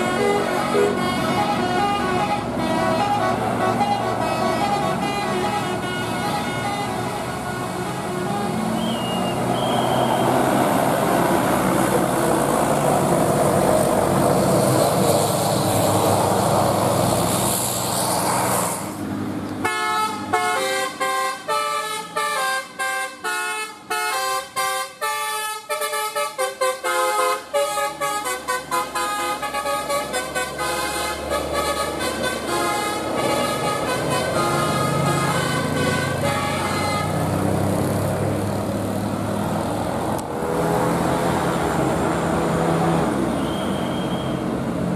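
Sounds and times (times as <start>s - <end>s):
multi-tone bus horn melody: 0.0s - 10.4s, 19.6s - 37.6s
bus passing: 0.0s - 44.9s.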